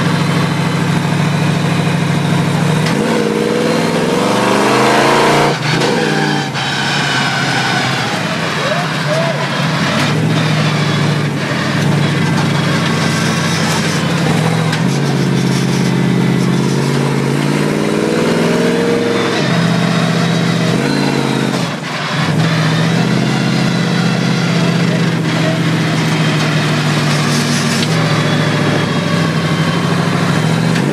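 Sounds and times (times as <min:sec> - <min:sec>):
truck engine revving: 0:00.0 - 0:30.9.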